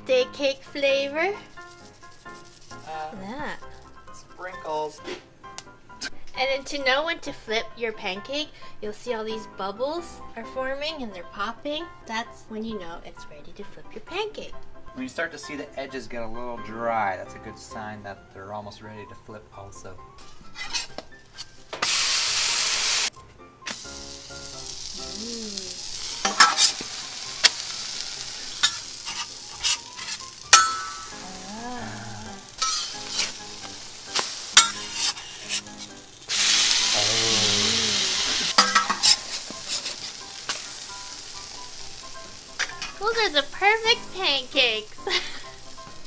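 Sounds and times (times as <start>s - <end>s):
batter sizzling on a griddle: 0.1s - 5.0s, 20.2s - 46.0s
metal spatula clicking and scraping: 28.5s - 31.2s, 32.6s - 36.0s, 38.5s - 40.6s.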